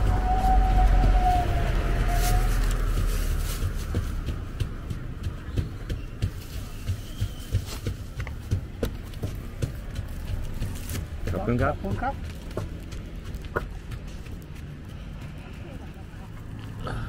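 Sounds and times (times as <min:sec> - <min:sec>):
low rumble: 0:00.0 - 0:05.8.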